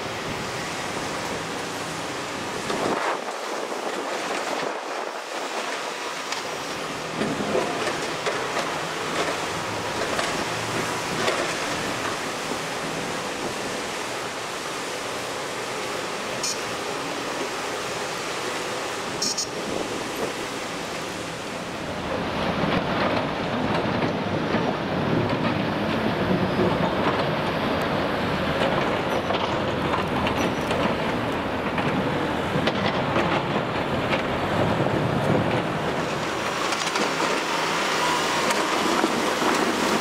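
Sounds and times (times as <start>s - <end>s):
wind hiss on microphone: 0.0s - 21.8s
excavator diesel engine running: 0.0s - 40.0s.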